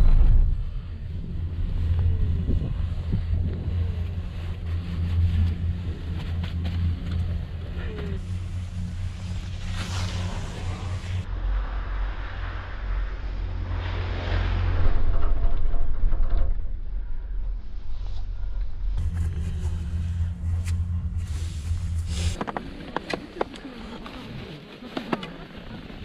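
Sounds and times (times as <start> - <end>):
wind on microphone: 0.0 - 7.6
low mechanical rumble: 0.0 - 24.5.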